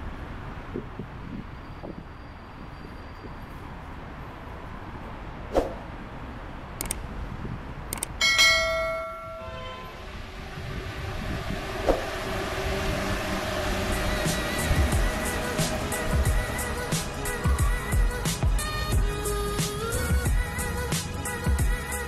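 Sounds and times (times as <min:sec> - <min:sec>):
train rumbling on viaduct: 0:07.3 - 0:20.9
bell-like metallic ring: 0:08.2 - 0:10.0.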